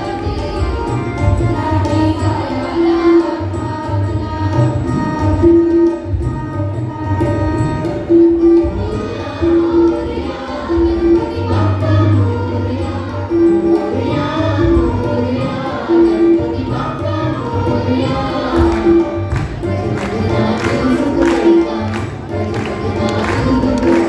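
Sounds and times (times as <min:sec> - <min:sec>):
hand drums: 0:00.0 - 0:24.0
singers in chorus: 0:08.4 - 0:24.0.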